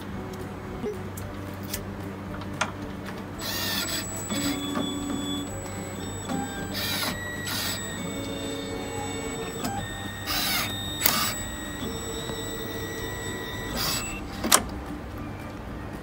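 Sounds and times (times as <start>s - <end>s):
motor whirring: 3.4s - 14.6s.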